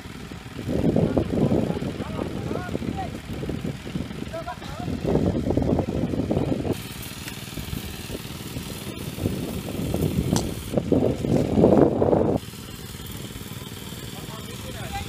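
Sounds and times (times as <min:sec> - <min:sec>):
small engine running: 0:00.0 - 0:15.0.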